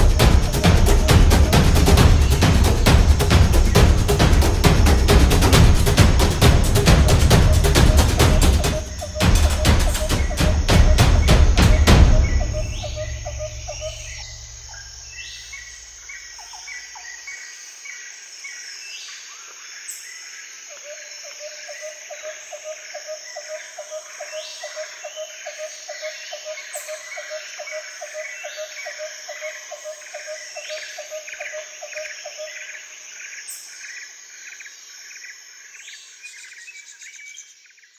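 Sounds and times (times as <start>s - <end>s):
drum-driven music: 0.0s - 14.7s
repeating animal call: 0.0s - 15.1s
birds chirping: 0.0s - 17.4s
insects buzzing: 0.0s - 37.9s.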